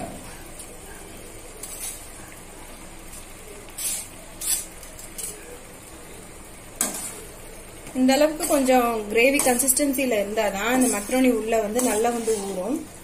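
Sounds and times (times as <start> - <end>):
pasta sliding into pan: 10.5 - 13.0.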